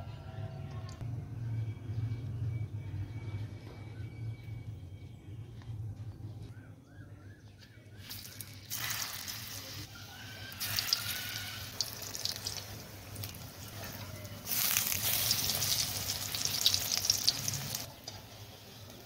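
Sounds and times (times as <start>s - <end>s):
hot oil sizzling and crackling: 8.0s - 19.0s.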